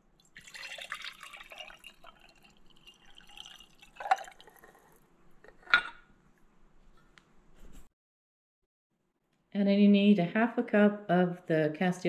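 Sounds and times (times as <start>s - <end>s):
water pouring into glass jar: 0.1s - 5.1s.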